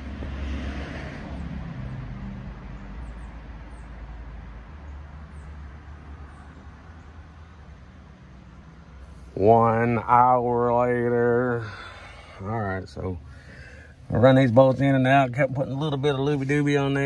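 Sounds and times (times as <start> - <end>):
vehicle driving past: 0.0 - 10.6
steady low rumble: 9.0 - 17.0.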